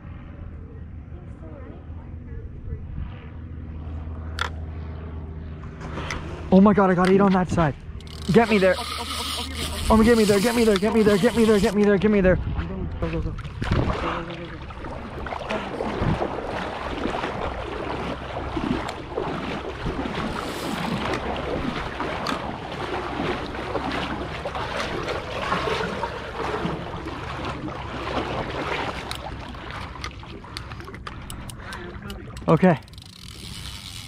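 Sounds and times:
water wash: 7.6 - 12.2, 13.3 - 32.8
electric motor hum: 7.8 - 11.8, 20.0 - 21.4, 32.4 - 34.0
wind noise on microphone: 7.9 - 14.2.

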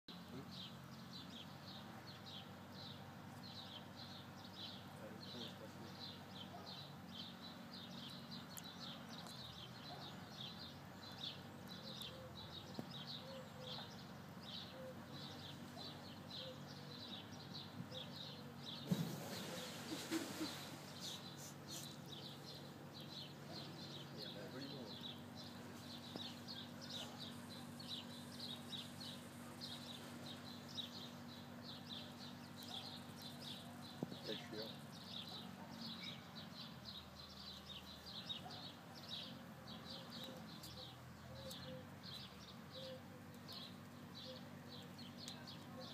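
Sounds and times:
bird chirping: 0.1 - 45.9
low steady murmur: 0.1 - 45.9
tiger splashing into water: 18.8 - 21.0.

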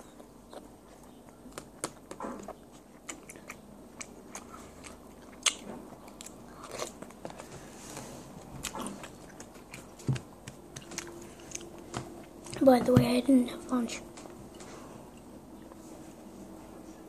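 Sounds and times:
crunchy cereal being chewed: 0.0 - 12.6.

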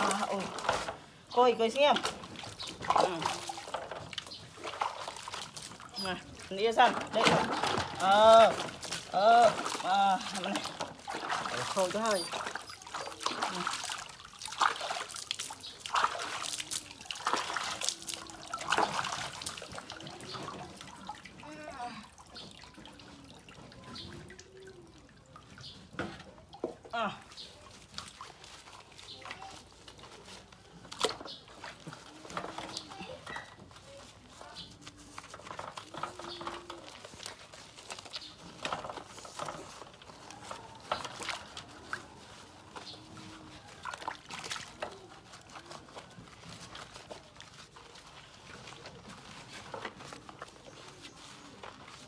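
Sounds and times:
hands scrubbing wet fur: 0.0 - 25.8, 27.0 - 52.0
small water splashes: 0.0 - 52.0
water dripping and trickling: 0.0 - 52.0.

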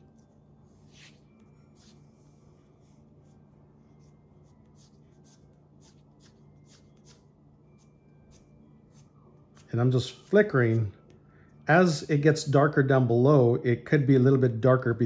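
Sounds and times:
pencil scratching on paper: 2.8 - 7.3.

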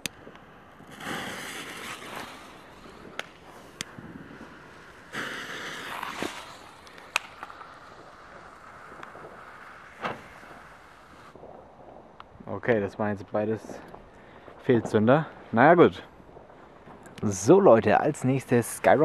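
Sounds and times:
firecracker fuse fizzing: 0.0 - 11.4
short sharp cracks: 5.1 - 8.0.

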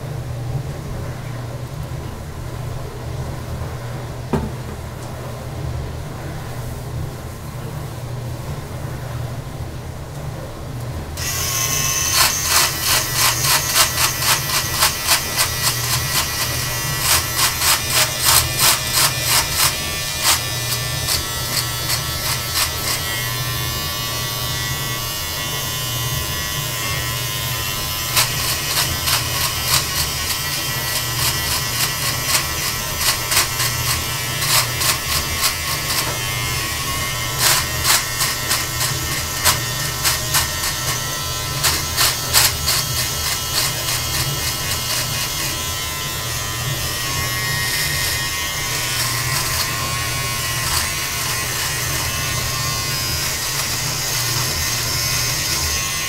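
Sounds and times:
blades crackling through hair: 11.2 - 56.0
electric beard trimmer buzzing: 11.2 - 56.0.

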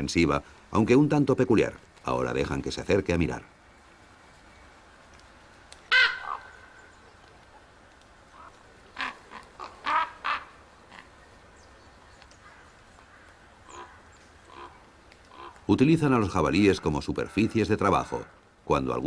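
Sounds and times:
ravens calling harshly: 5.9 - 6.8, 8.3 - 11.2, 12.4 - 18.5.

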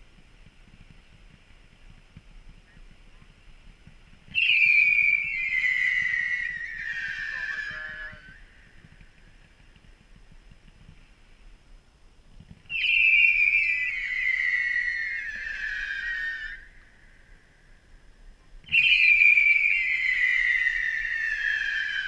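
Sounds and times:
firework whistles: 4.3 - 9.0, 12.6 - 17.1, 18.7 - 22.0.

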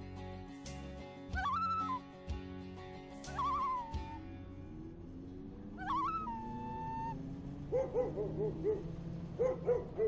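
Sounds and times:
dog yipping howls: 1.4 - 2.0, 3.3 - 4.2, 5.8 - 10.0
dog howling: 5.8 - 8.8.

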